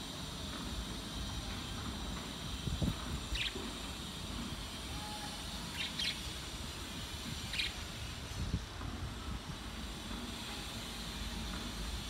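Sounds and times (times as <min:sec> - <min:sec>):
budgerigars chirping: 0:05.7 - 0:06.3, 0:07.4 - 0:07.8.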